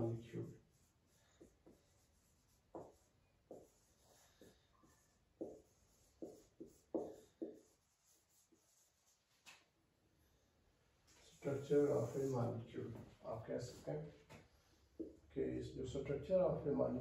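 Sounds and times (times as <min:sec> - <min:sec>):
marker squeaking on whiteboard: 0:00.7 - 0:09.7.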